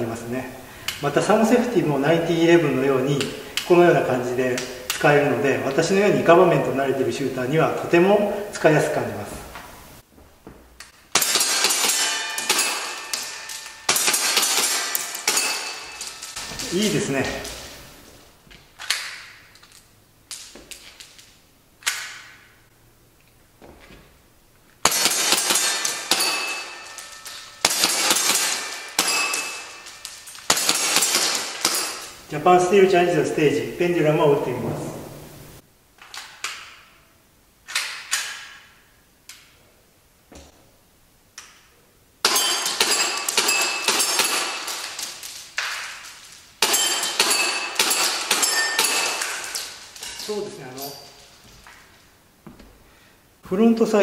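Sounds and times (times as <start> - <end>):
airsoft pistol shots: 11.1 - 15.9, 24.8 - 27.0, 27.6 - 32.0, 42.2 - 45.0
metallic pings from target plates: 11.2 - 17.0, 24.9 - 32.2, 42.2 - 51.3.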